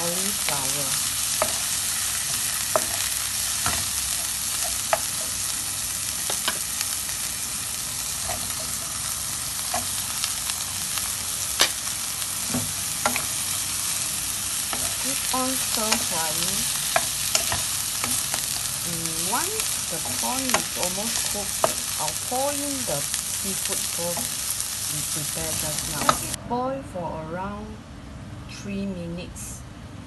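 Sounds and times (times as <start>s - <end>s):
food sizzling in oil: 0.0s - 26.4s
spatula scraping pan: 8.1s - 10.1s, 11.5s - 13.6s, 14.6s - 18.7s.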